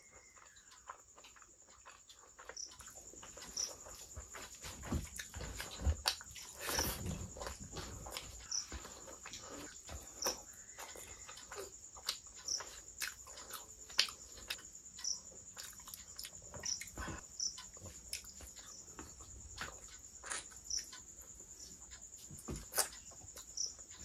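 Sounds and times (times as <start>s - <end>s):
wet chewing and lip smacks: 0.2s - 4.5s, 5.1s - 8.5s, 9.2s - 14.7s, 15.5s - 17.0s.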